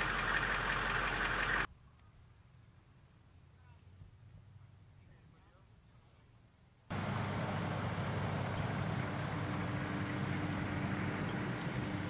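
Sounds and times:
vehicle engine humming: 0.0s - 1.8s, 6.9s - 12.0s.

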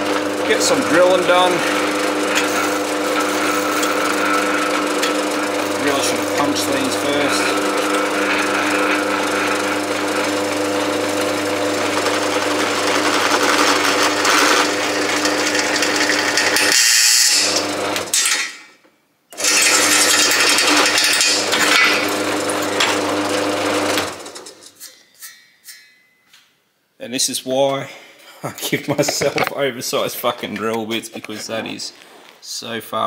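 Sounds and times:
drill press motor humming: 0.0s - 18.6s, 19.3s - 24.7s.

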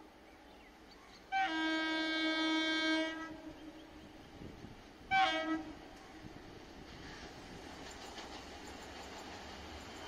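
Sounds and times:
train horn blasts: 1.3s - 4.0s, 5.1s - 6.0s.

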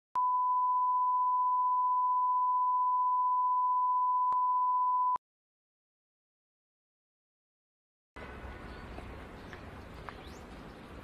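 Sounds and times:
steady test tone beep: 0.2s - 5.2s.

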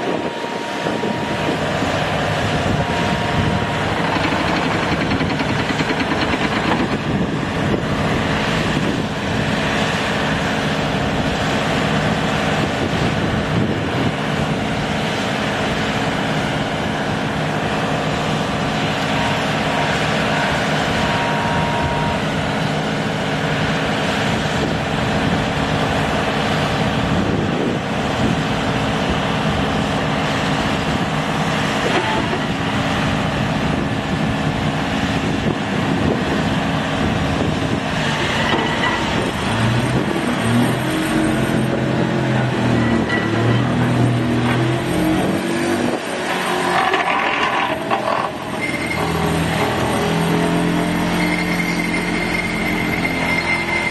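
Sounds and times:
excavator engine humming: 0.0s - 53.9s
vibratory hammer on steel pile: 2.7s - 7.8s.

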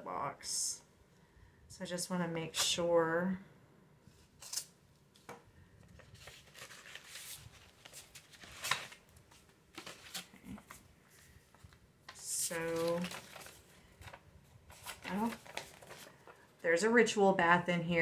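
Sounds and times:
paper sheets crinkling: 5.9s - 16.5s.

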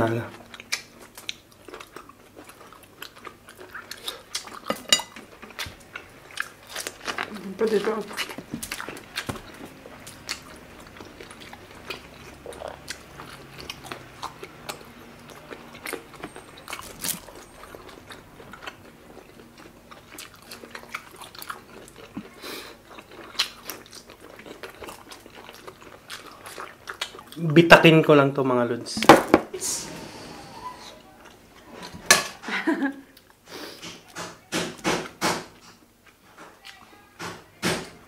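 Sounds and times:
wet chewing: 0.3s - 27.6s.

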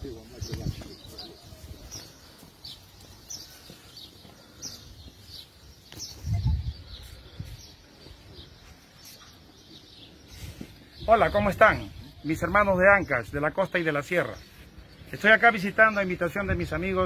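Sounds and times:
small bird chirping: 0.4s - 11.2s.

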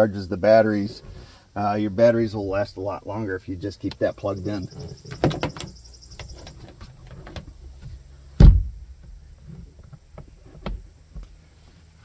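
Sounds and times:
cord and hatch rustling: 3.8s - 8.0s
storage panel thumping shut: 5.1s - 5.8s, 8.4s - 8.8s.

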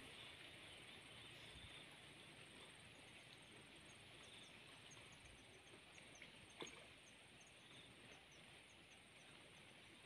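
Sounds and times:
insect chirping trill: 2.8s - 10.0s.

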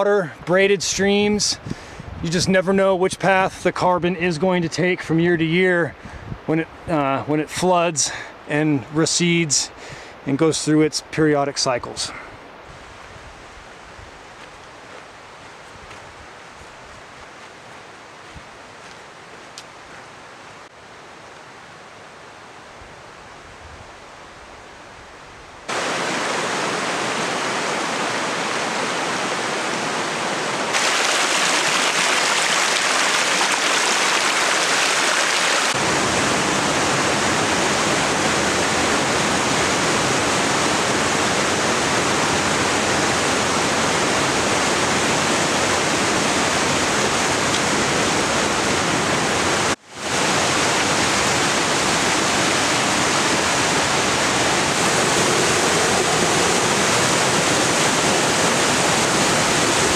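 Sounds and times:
water rushing over rocks: 25.7s - 59.9s.

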